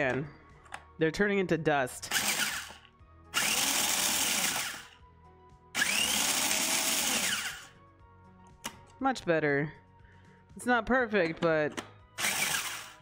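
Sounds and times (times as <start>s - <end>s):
electric food chopper motor: 2.1s - 5.0s, 5.8s - 7.8s, 12.2s - 13.0s.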